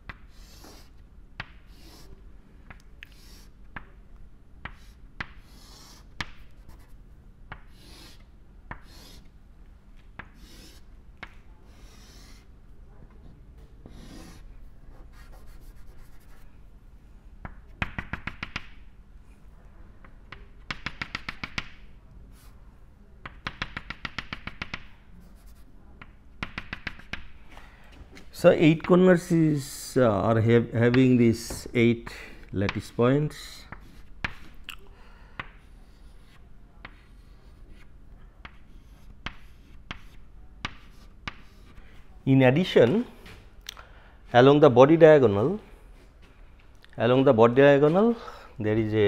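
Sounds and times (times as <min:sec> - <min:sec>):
rapid chalk taps: 0:00.0 - 0:02.1, 0:04.6 - 0:06.9, 0:07.5 - 0:09.3, 0:17.4 - 0:18.8, 0:20.3 - 0:21.8, 0:23.2 - 0:27.4, 0:32.6 - 0:33.0, 0:33.6 - 0:34.6, 0:35.4 - 0:41.8
chalk scratching on blackboard: 0:00.2 - 0:01.0, 0:01.6 - 0:02.2, 0:03.0 - 0:03.6, 0:04.7 - 0:07.0, 0:07.6 - 0:09.3, 0:10.2 - 0:10.9, 0:11.7 - 0:12.5, 0:13.9 - 0:16.5, 0:35.6 - 0:37.9, 0:38.5 - 0:41.8.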